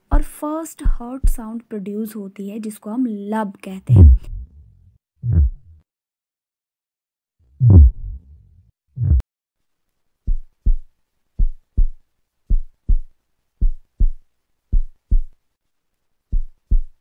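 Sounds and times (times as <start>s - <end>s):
heartbeat thuds: 0.1s - 1.5s, 3.9s - 4.6s, 7.6s - 8.3s, 9.0s - 9.2s, 10.3s - 15.4s, 16.3s - 17.0s.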